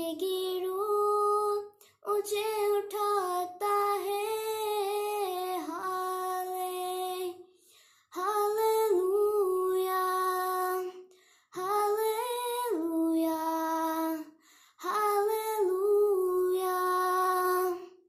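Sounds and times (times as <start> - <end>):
girl singing unaccompanied: 0.0 - 7.5, 8.1 - 18.0.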